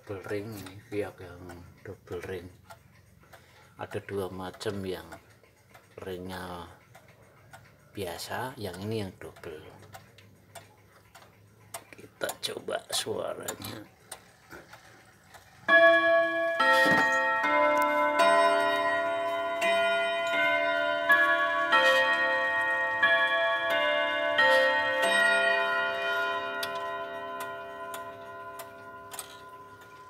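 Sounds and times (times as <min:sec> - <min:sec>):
clock chime melody: 0:14.2 - 0:30.0.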